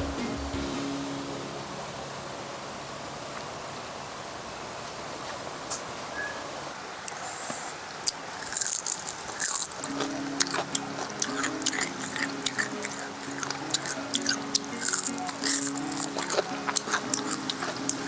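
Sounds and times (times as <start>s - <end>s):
crunchy food being eaten: 8.0s - 18.0s.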